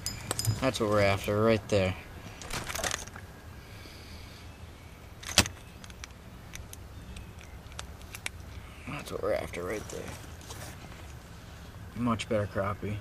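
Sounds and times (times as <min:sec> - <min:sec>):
small clicks and rustles: 0:02.3 - 0:03.3, 0:05.2 - 0:08.6.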